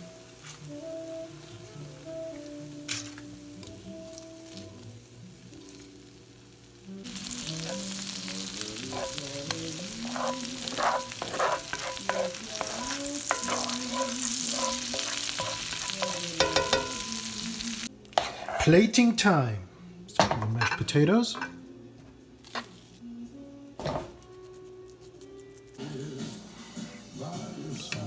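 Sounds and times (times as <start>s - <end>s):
butter sizzling in a skillet: 0.0s - 18.6s
spatula scraping a pan: 7.3s - 17.5s, 18.2s - 18.8s.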